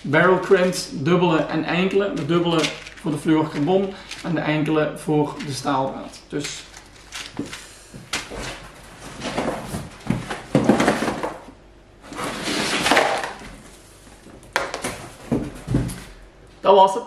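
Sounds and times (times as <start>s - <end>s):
items sliding out of cardboard box: 12.0s - 13.3s.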